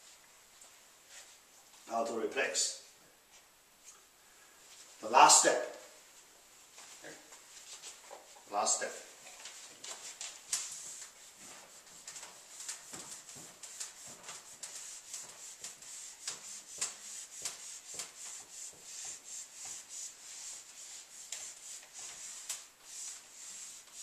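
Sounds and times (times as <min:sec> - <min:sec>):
eraser wiping whiteboard: 0:07.6 - 0:24.0.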